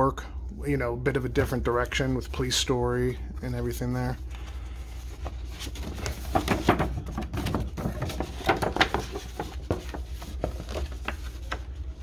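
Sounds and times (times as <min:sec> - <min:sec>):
paper rustling and crinkling: 0:03.6 - 0:12.0.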